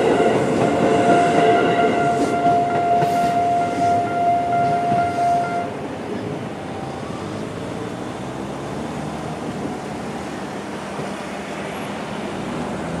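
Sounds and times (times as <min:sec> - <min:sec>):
car engines idling and pulling away: 0:06.1 - 0:13.0.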